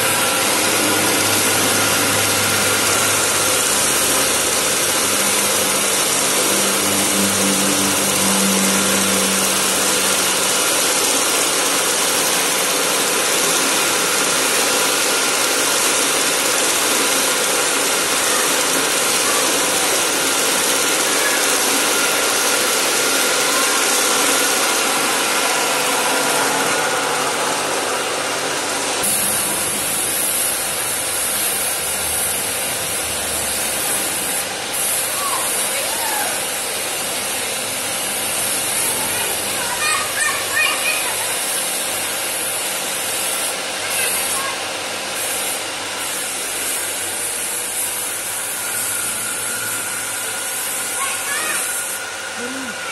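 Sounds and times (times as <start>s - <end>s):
low hum: 0.0s - 11.7s
paint spray gun hissing: 0.0s - 49.2s, 50.2s - 52.8s.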